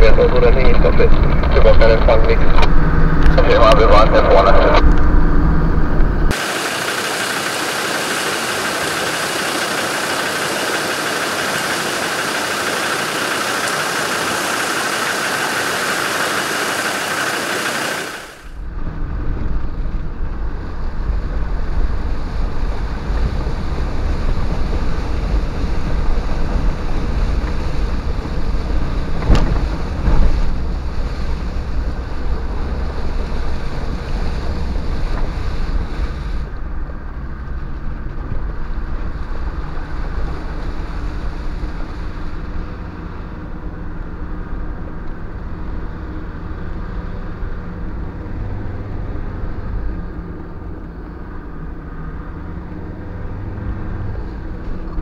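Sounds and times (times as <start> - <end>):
deep diesel engine drone: 0.0 - 55.0
river water rushing: 6.3 - 18.6.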